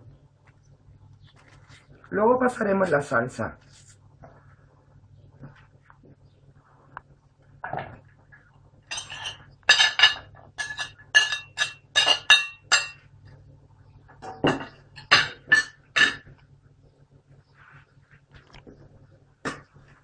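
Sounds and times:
knife clinking and scraping plate: 8.9s - 13.0s, 14.5s - 16.3s.

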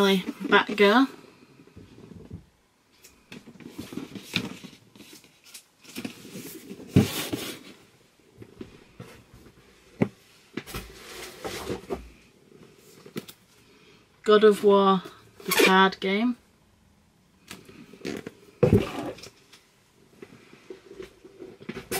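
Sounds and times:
cardboard rustling and scraping: 3.2s - 13.4s.

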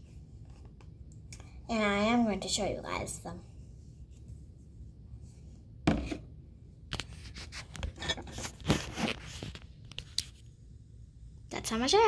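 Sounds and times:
rubbing against microphone: 7.1s - 10.4s.

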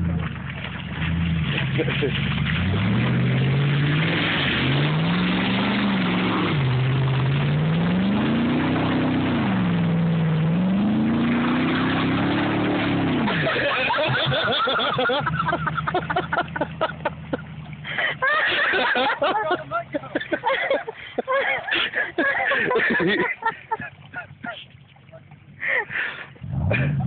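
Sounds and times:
truck engine revving: 1.0s - 20.5s, 26.4s - 27.0s.

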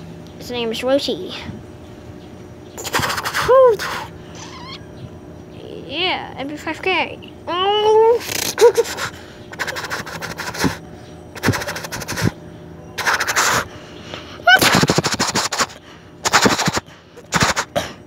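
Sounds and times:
child making machine-gun noises: 2.8s - 4.8s, 7.5s - 10.8s, 11.4s - 12.3s, 13.0s - 13.6s, 14.4s - 17.8s.

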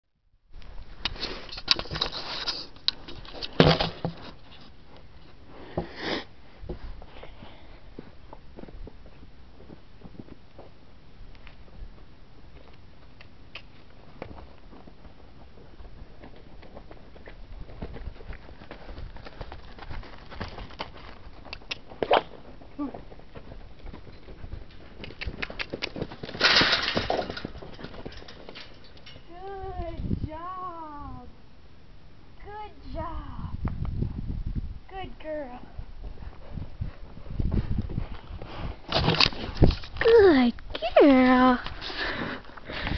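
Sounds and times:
faint outdoor background: 0.0s - 42.9s
horse hooves cantering on dirt: 7.9s - 29.3s, 35.7s - 40.0s.

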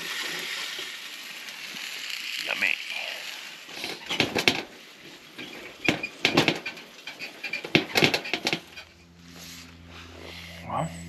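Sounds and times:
meat sizzling in a frying pan: 0.0s - 6.3s.

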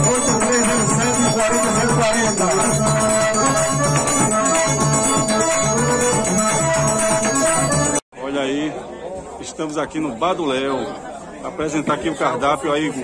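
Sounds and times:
accordion melody: 0.0s - 8.0s.

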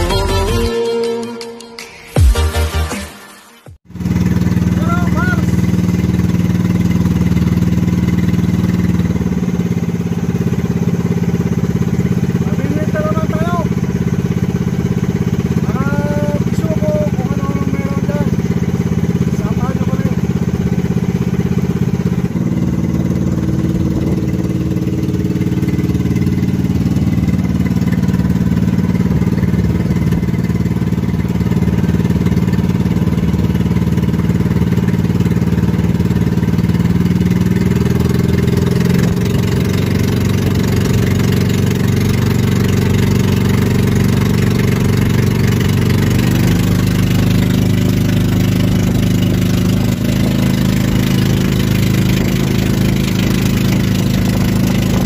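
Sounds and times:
boat engine running: 3.8s - 55.0s.

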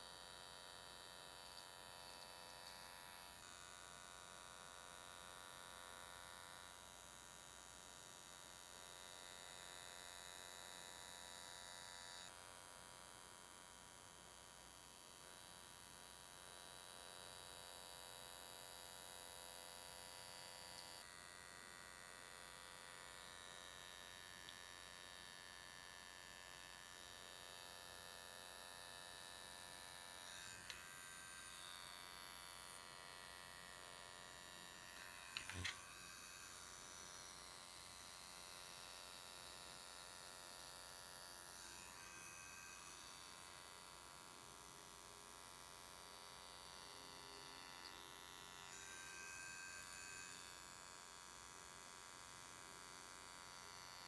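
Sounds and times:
ultrasonic skin scrubber whine: 0.6s - 6.7s, 26.6s - 43.9s, 46.1s - 50.8s.

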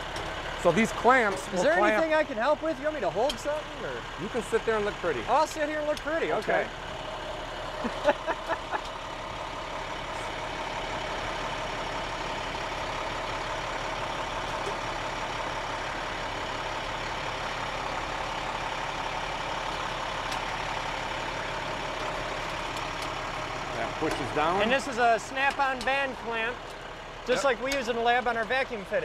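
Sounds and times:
truck engine idling: 0.0s - 29.0s
metal tubes clanking: 19.5s - 28.9s.

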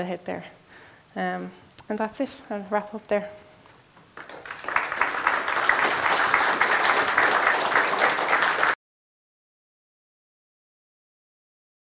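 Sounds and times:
audience applauding: 4.2s - 8.8s.

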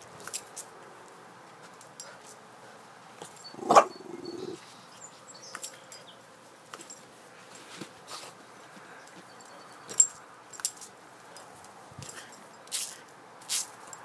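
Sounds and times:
dog barking and grumbling: 3.5s - 4.6s.

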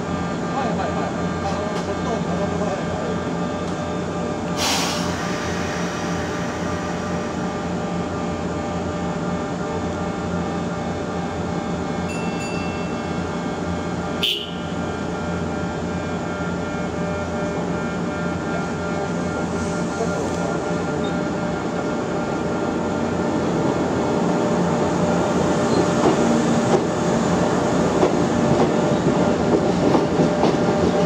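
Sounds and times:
electric train equipment humming: 0.0s - 31.0s
short hisses: 4.6s - 7.1s.

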